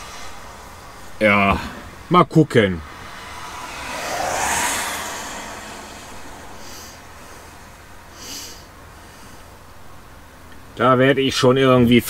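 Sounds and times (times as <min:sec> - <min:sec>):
car tyres hissing on wet road: 0:00.0 - 0:01.1, 0:02.8 - 0:09.9.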